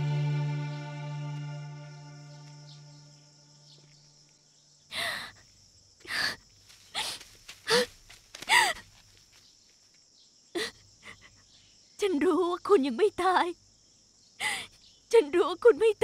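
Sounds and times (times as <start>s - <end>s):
soft background music: 0.0s - 3.5s
crickets chirring: 2.4s - 15.0s.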